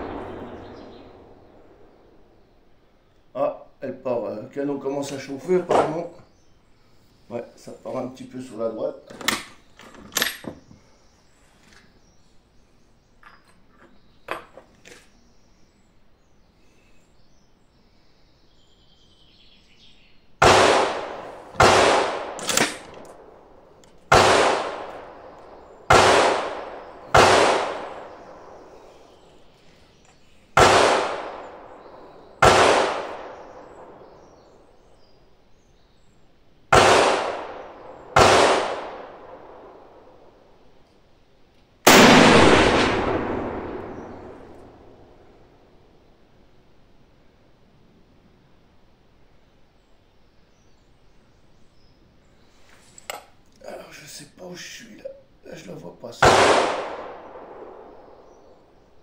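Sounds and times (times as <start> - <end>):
rifle shots with ringing echo: 0.0 - 2.4, 20.4 - 29.3, 30.5 - 34.7, 36.7 - 40.4, 41.8 - 45.7, 56.2 - 58.7.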